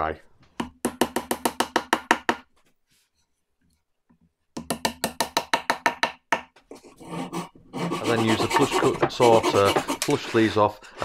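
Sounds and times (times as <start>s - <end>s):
hammer tapping wood: 0.6s - 2.4s, 4.6s - 6.6s, 8.1s - 10.2s.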